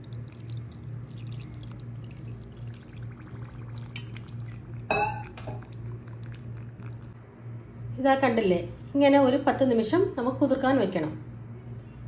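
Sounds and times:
water pouring into a bowl: 0.0s - 7.2s
water trickling and dripping: 0.0s - 7.2s.

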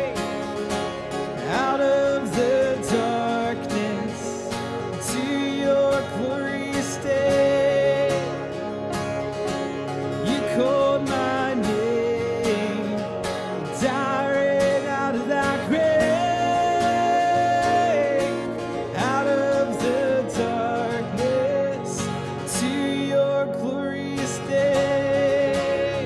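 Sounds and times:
acoustic guitar strumming: 0.0s - 26.0s
man singing: 0.0s - 26.0s.

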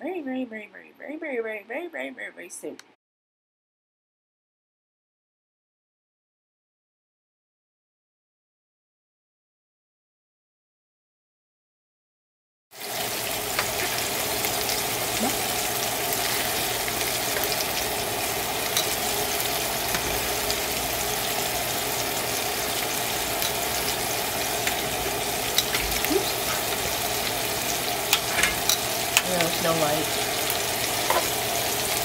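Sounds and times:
meatballs sizzling in oil: 12.8s - 32.0s.

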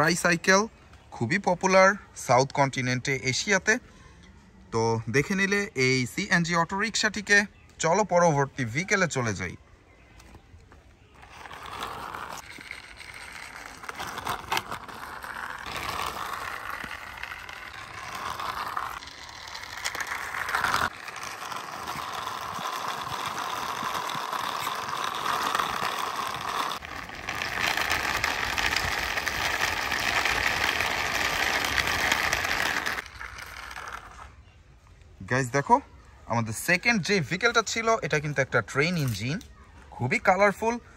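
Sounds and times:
toy train wheels whirring and rattling: 11.1s - 34.4s.

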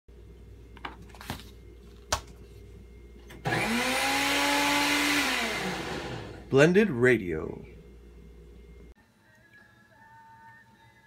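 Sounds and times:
electric blender whirring: 3.4s - 6.5s.

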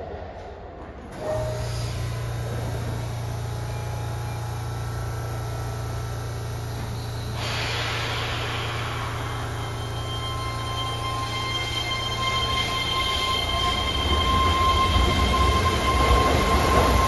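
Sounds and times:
electric train humming: 1.1s - 17.0s
compressed air hiss: 7.3s - 9.7s.

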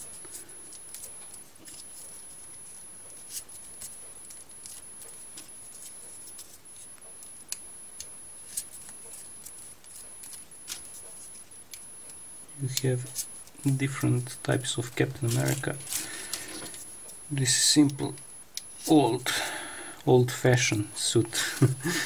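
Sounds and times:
paper rustling: 14.9s - 16.9s.

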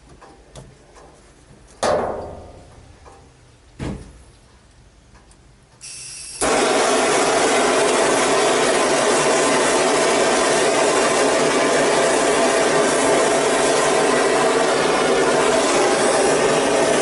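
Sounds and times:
gas hissing from valve: 5.8s - 17.0s
gas torch igniting: 5.8s - 17.0s
torch flame burning: 5.9s - 17.0s.

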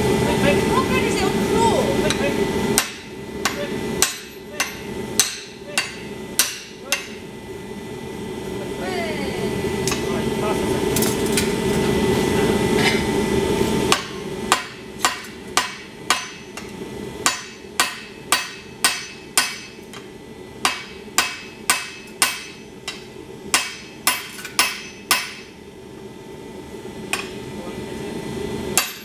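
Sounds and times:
hammer striking steel on anvil: 2.1s - 7.2s, 13.9s - 25.5s, 27.1s - 27.4s, 28.8s - 29.0s.

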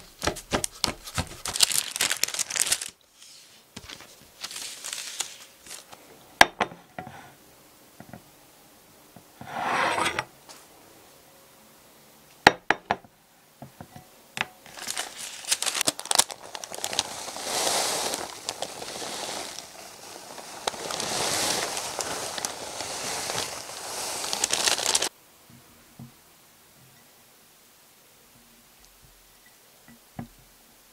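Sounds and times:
baking paper crinkling: 0.0s - 6.0s, 14.6s - 25.1s.

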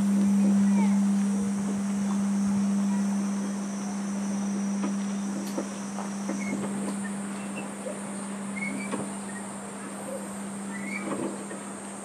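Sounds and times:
temple bell humming low tone: 0.0s - 8.7s
insects droning: 0.0s - 12.0s.

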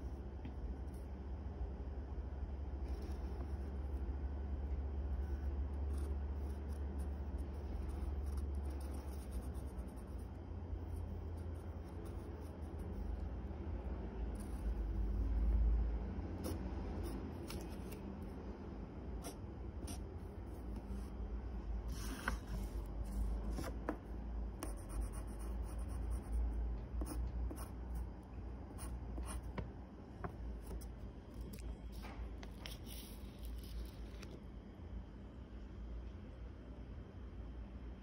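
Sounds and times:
low steady rumble: 0.0s - 38.0s
pencil scratching on paper: 5.2s - 13.2s, 21.9s - 24.0s, 24.6s - 26.4s, 27.0s - 27.8s, 28.8s - 29.6s.

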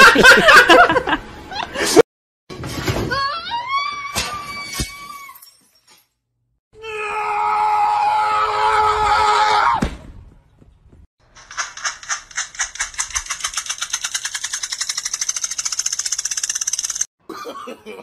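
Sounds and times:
sharp clicks: 11.4s - 17.1s.

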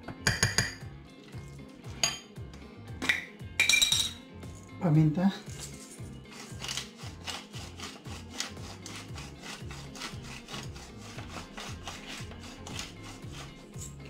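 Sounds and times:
pepper mill grinding: 5.5s - 14.0s.

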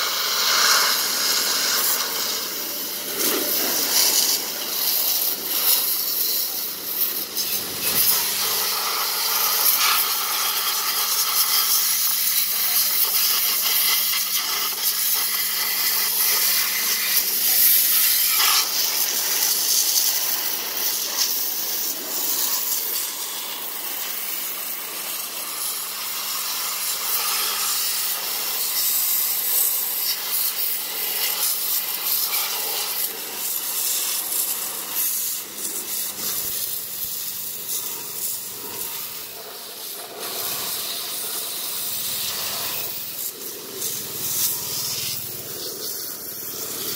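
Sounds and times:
high-pressure water jet hissing: 0.0s - 46.9s
spray spattering on metal: 0.0s - 46.9s.

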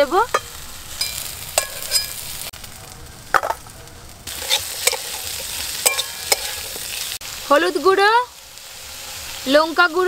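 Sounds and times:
vegetables sizzling in oil: 0.0s - 10.0s
spatula scraping a wok: 0.2s - 2.5s, 4.3s - 7.2s
metal clinks on a pan: 0.3s - 2.3s, 4.4s - 6.8s.

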